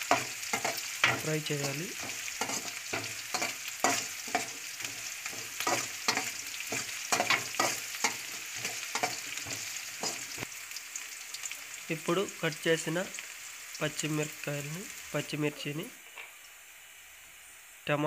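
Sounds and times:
metal spatula scraping wok: 0:00.0 - 0:10.5
onions sizzling in oil: 0:00.0 - 0:18.0.

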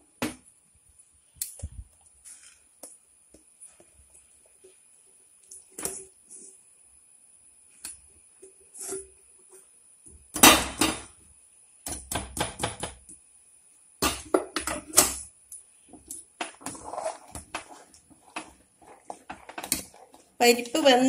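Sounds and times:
spoon scraping inside cooker: 0:16.4 - 0:20.8.

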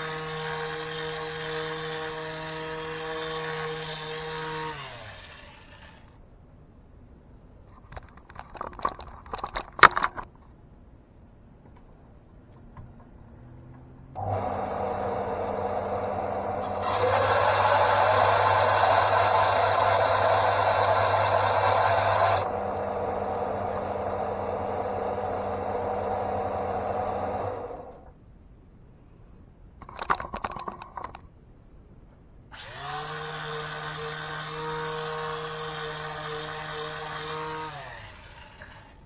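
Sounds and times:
sander grinding wood: 0:00.0 - 0:06.1, 0:14.2 - 0:28.0, 0:32.6 - 0:39.0
sander motor hum: 0:14.2 - 0:28.1, 0:32.6 - 0:39.0.

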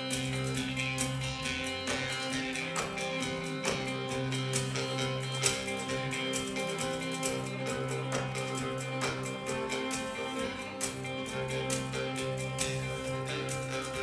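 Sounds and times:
electric bass: 0:00.0 - 0:14.0
harmonica notes: 0:00.0 - 0:14.0
picked guitar: 0:00.0 - 0:14.0.

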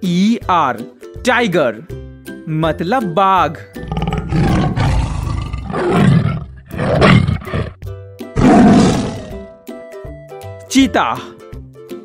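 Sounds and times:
light background music: 0:00.0 - 0:12.0
tiger roaring: 0:03.8 - 0:07.8, 0:08.4 - 0:09.5.

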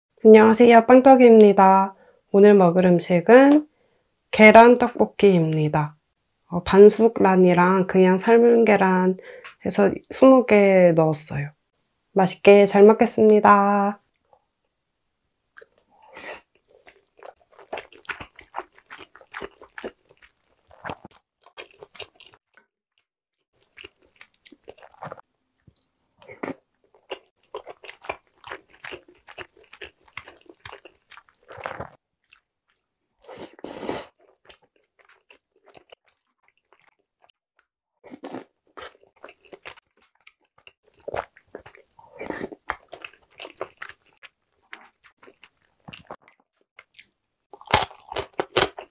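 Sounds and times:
close chewing wet mouth sounds: 0:16.4 - 0:22.4, 0:23.6 - 0:32.8, 0:34.2 - 0:37.4, 0:38.2 - 0:48.9.

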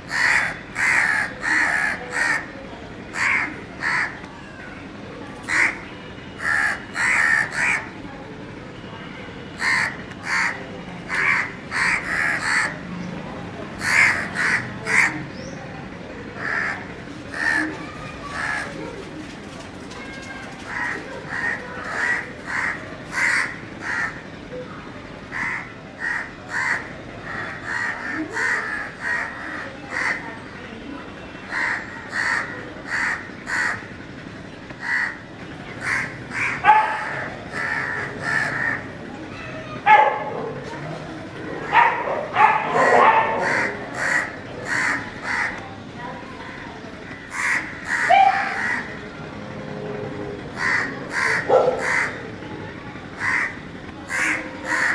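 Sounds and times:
crow cawing: 0:00.1 - 0:02.5, 0:03.1 - 0:04.2, 0:05.5 - 0:05.8, 0:06.4 - 0:07.9, 0:09.6 - 0:12.8, 0:13.8 - 0:15.2, 0:16.4 - 0:18.7, 0:20.7 - 0:24.2, 0:25.3 - 0:30.2, 0:31.5 - 0:33.9, 0:34.8 - 0:35.2, 0:35.8 - 0:38.9, 0:42.8 - 0:45.6, 0:47.2 - 0:48.9, 0:50.6 - 0:52.2, 0:53.2 - 0:54.9.

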